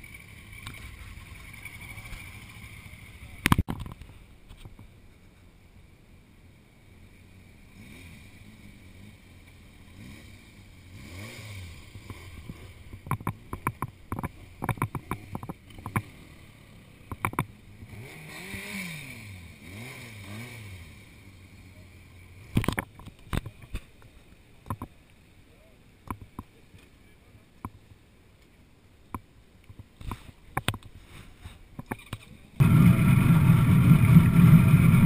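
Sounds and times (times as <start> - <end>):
motorcycle engine revving: 0.0 - 3.6, 7.1 - 22.9, 32.0 - 35.0.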